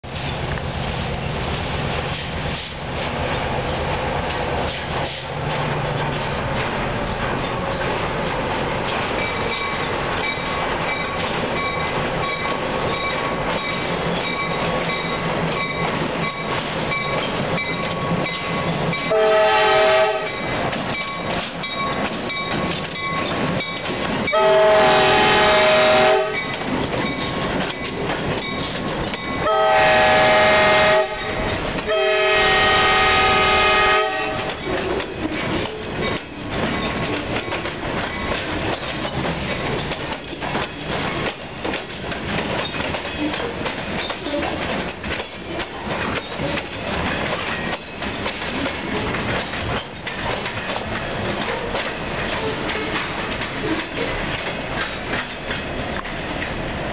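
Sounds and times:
train wheels clattering over rail joints: 0.0 - 56.9
locomotive air horn blasts: 19.1 - 20.3, 24.3 - 26.4, 29.4 - 34.5.

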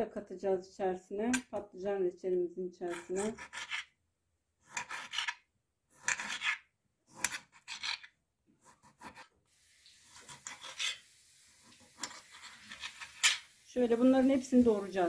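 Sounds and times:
knife sawing through lemons: 8.6 - 9.4.

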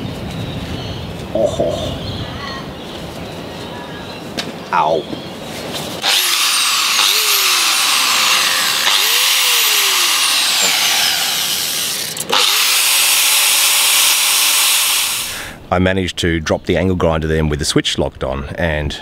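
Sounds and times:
wire wheel grinder scrubbing metal: 6.0 - 15.4.

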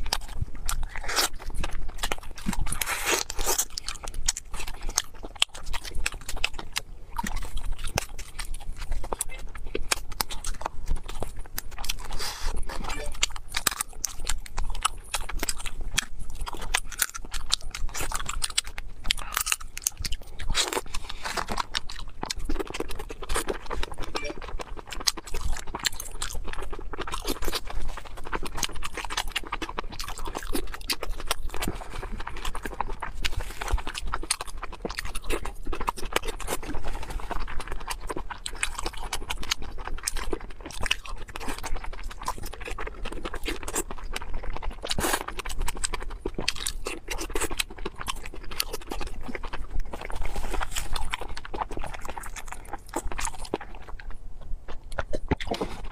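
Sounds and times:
person chewing food: 0.0 - 55.9.

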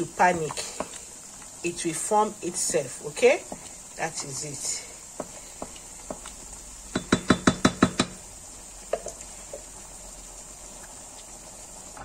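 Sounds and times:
spoon knocking on metal pot: 6.9 - 8.2.

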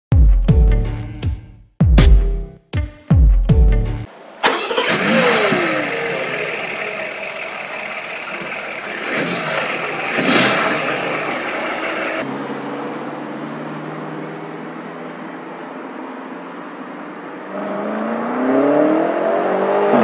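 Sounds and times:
car engine revving: 4.1 - 12.2.

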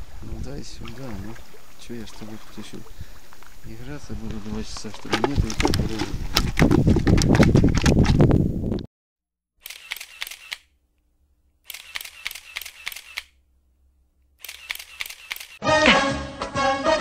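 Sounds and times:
camera shutter clicking: 9.6 - 10.7, 11.7 - 13.4, 14.4 - 15.6
music: 15.6 - 17.0.

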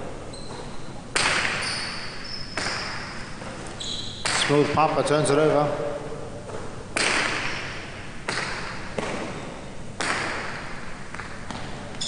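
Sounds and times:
echo in a hall: 0.0 - 12.0
ball cracking against walls: 1.1 - 4.8, 6.4 - 12.0.

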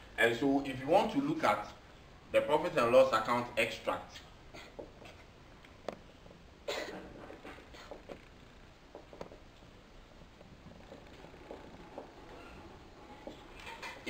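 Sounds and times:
marker on whiteboard: 4.1 - 6.0, 7.1 - 9.5, 10.8 - 13.7.

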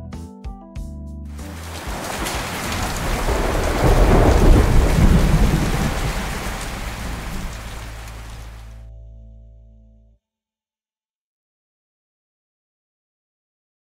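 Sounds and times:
thunder rumbling: 1.4 - 8.7
heavy rain: 1.4 - 8.8.

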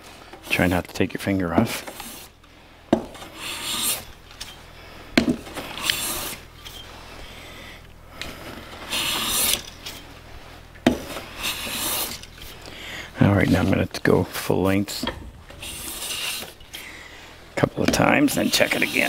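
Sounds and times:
hand plane shaving wood: 1.6 - 2.3, 3.0 - 4.5, 5.2 - 7.2, 8.3 - 10.1, 10.9 - 12.6, 15.5 - 16.9, 17.9 - 19.0.

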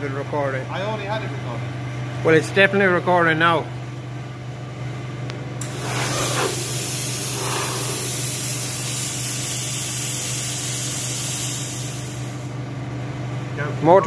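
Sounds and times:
steady low hum: 3.6 - 13.9
loud steady hiss: 5.6 - 12.6.

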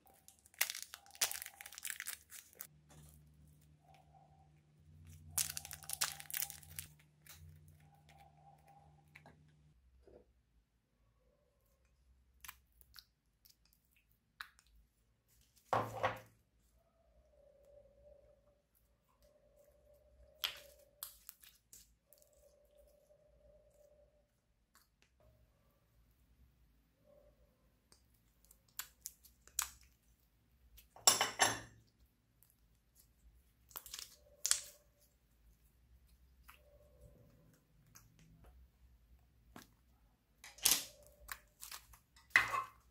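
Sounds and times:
wet slime squelch: 0.0 - 9.2.

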